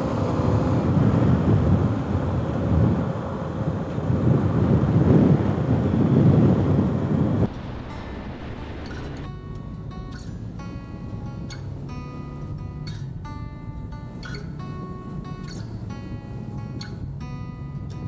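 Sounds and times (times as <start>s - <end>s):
wind buffeting microphone: 0.0s - 13.2s
motorcycle engine: 0.0s - 18.0s.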